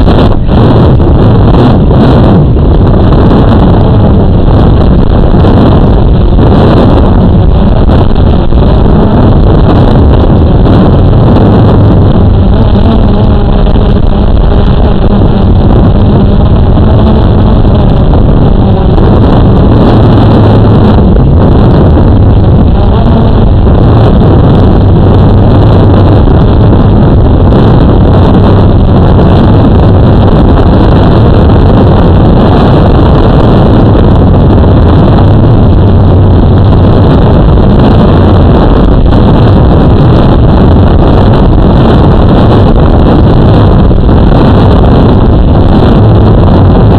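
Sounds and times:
rushing air: 0.0 - 46.9
model aircraft motors buzzing: 5.4 - 30.9.

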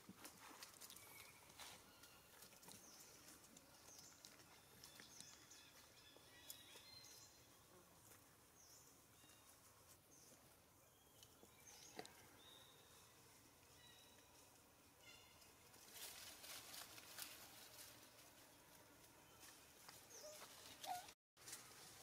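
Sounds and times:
rustles in dry leaf litter: 15.7 - 18.4, 20.3 - 22.0.

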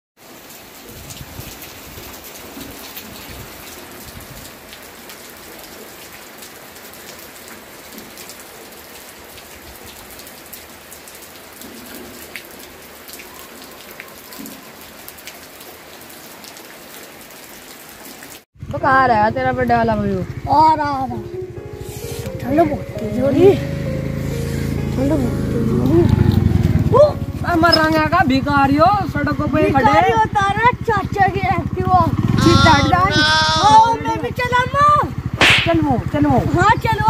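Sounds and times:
rain on a concrete roof: 0.2 - 18.5, 25.0 - 37.0.

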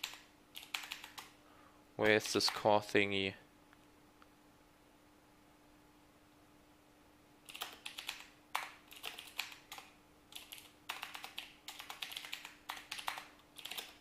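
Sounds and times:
keyboard typing clicks: 0.0 - 1.4, 7.5 - 14.0
faint steady hum: 0.0 - 14.0.

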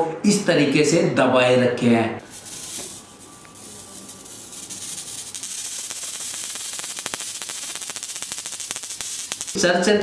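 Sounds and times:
electric mosquito racket crackling: 2.2 - 9.7.

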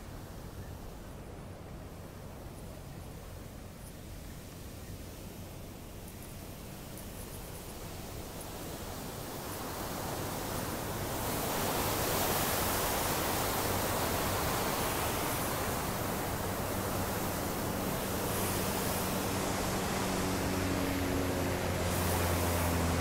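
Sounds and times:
low engine hum: 1.2 - 23.0
water rushing over a weir: 8.1 - 23.0.

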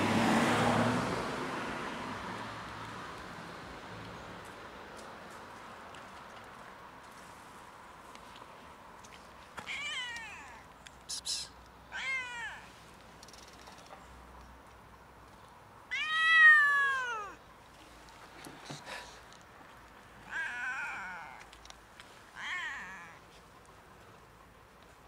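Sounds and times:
cat meowing: 9.7 - 10.6, 11.9 - 12.7, 15.9 - 17.4, 20.2 - 21.5, 22.4 - 23.2.

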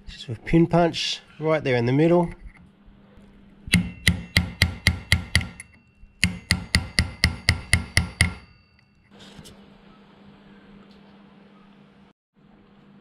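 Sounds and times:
hammer striking metal punch: 3.7 - 8.9.

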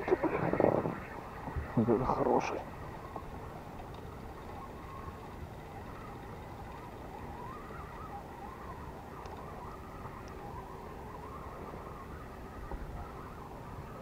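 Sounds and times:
faint wavering hum: 0.0 - 14.0
wind rumble on microphone: 0.0 - 14.0.

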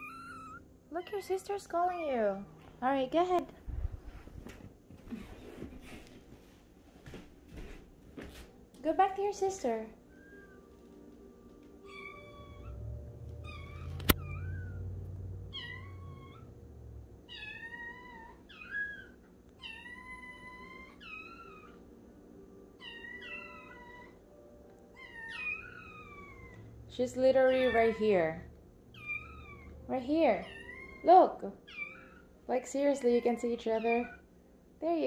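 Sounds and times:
kittens meowing: 0.0 - 0.7, 11.8 - 12.8, 13.4 - 14.8, 15.5 - 16.5, 17.3 - 21.8, 22.8 - 24.2, 24.9 - 26.8, 27.4 - 28.3, 28.9 - 29.8, 30.4 - 32.3.

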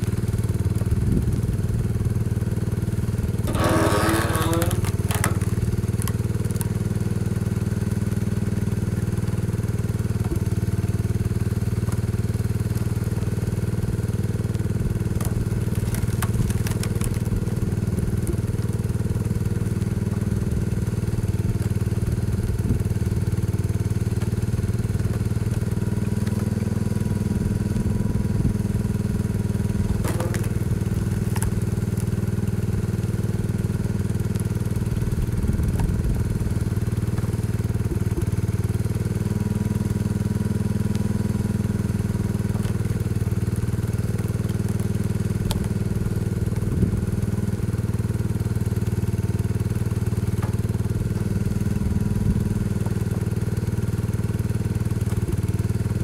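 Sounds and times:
tractor engine running: 0.0 - 56.0
firewood being split and tossed: 2.9 - 7.1, 11.7 - 28.3, 29.3 - 40.0, 42.0 - 47.4, 48.7 - 56.0.

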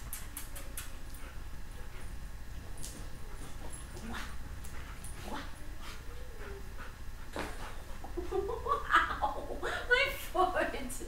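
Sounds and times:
dog whining softly: 5.2 - 7.0.

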